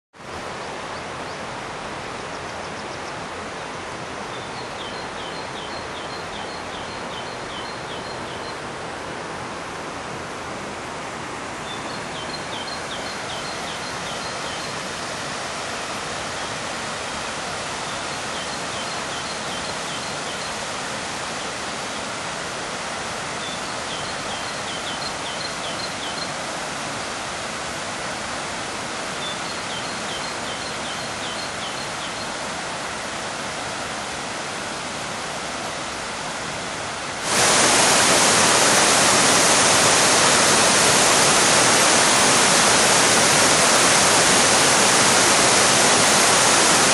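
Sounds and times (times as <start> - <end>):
waterfall rushing over rock: 0.2 - 46.9
songbird singing: 2.2 - 3.2, 4.2 - 8.7, 11.6 - 15.2, 17.8 - 20.7, 23.3 - 26.4, 29.1 - 32.4.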